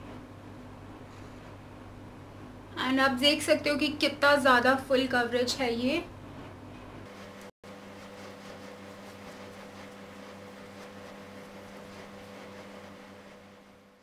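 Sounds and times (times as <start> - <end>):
appliance hum with hiss: 0.0 - 14.0.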